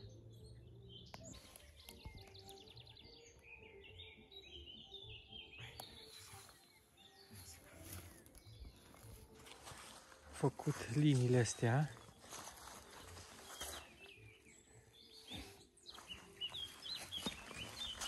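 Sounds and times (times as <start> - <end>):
high bird chirps: 12.0 - 18.0.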